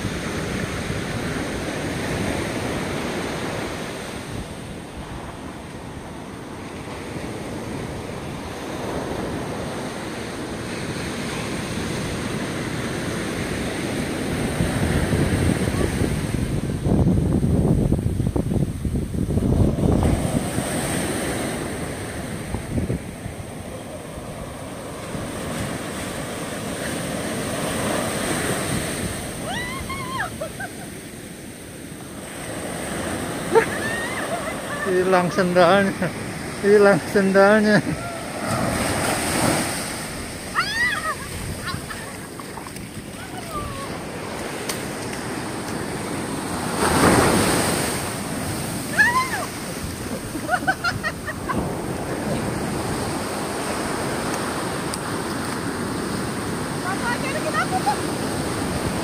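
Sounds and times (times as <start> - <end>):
ocean surf breaking: 0.0 - 59.0
wind rumbling on microphone: 0.0 - 59.0
person crying out: 29.4 - 30.4, 37.8 - 38.3, 40.5 - 41.4, 48.9 - 49.5.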